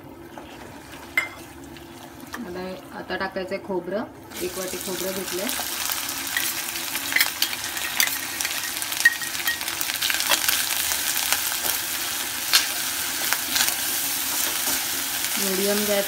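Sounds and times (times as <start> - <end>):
coconut sizzling in a pan: 4.3 - 16.0.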